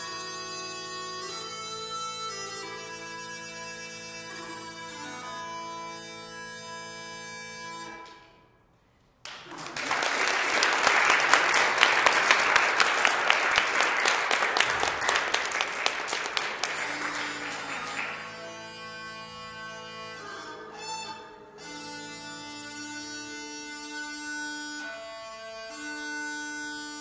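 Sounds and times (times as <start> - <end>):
audience clapping: 9.2 - 18.7.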